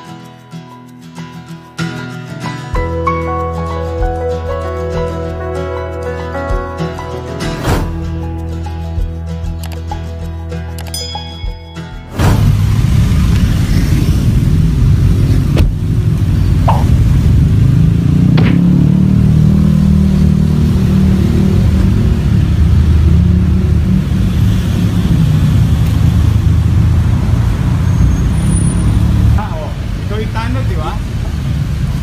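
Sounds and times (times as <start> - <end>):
street traffic rumble: 12.1 - 32.0.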